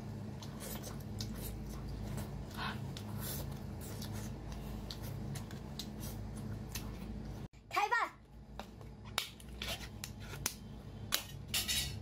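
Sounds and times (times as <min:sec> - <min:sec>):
steady low hum: 0:00.0 - 0:12.0
chewing with mouth smacks: 0:00.2 - 0:07.4.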